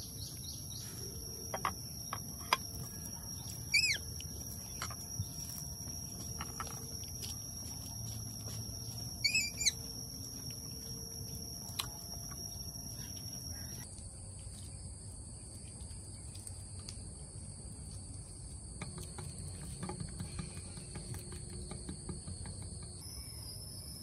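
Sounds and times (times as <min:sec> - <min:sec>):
insect drone: 0:00.0 - 0:24.0
bird chirping call: 0:03.3 - 0:04.1, 0:09.2 - 0:09.9.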